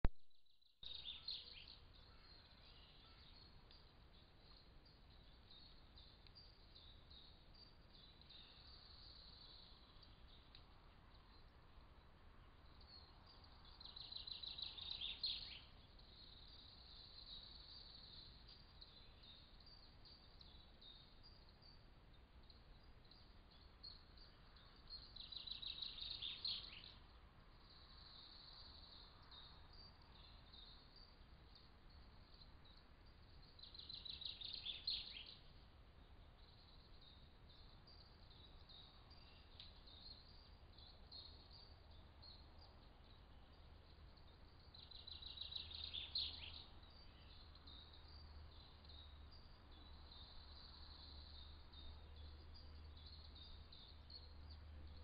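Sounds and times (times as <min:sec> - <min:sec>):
faint steady high hiss: 0:00.0 - 0:55.0
songbird trilling: 0:13.7 - 0:21.8, 0:33.5 - 0:35.5, 0:44.7 - 0:49.2.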